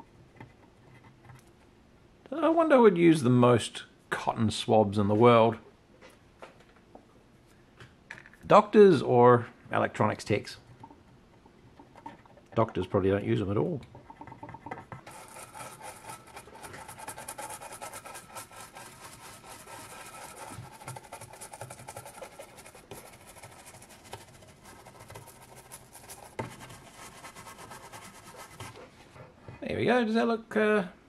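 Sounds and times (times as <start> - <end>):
brush scrubbing circuit board: 13.3 - 29.3
paper towel rubbing: 14.1 - 29.3.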